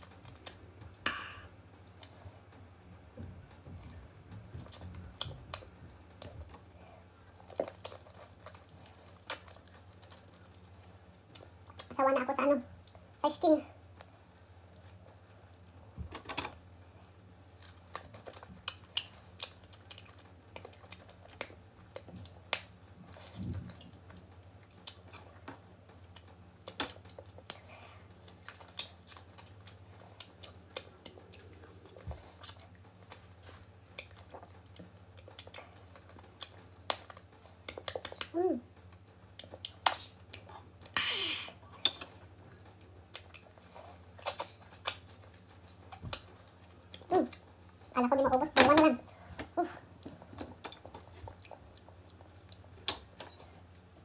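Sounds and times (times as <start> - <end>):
steady low hum: 0.0 - 54.0
wet mouth clicks: 44.2 - 45.1.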